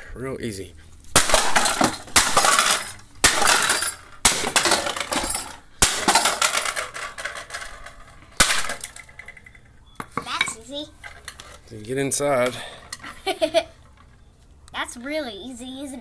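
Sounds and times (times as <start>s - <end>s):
plastic smashed on concrete: 1.1s - 9.4s
pieces clattering: 1.2s - 11.6s.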